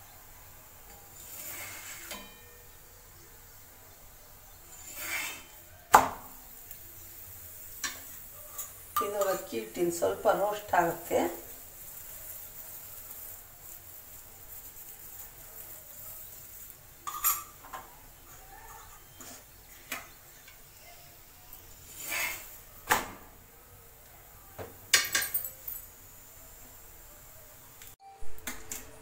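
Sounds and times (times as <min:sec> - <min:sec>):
faint steady hiss: 0:00.0 - 0:29.0
spatula clanking on iron griddle: 0:00.9 - 0:02.7, 0:07.8 - 0:09.6, 0:17.0 - 0:17.9.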